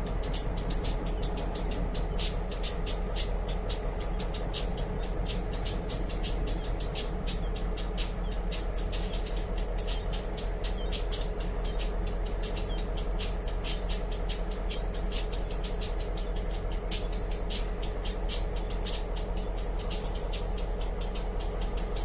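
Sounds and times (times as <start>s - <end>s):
locomotive engine idling: 0.0s - 22.0s
rapid high-pitched ticking crackle: 0.0s - 22.0s.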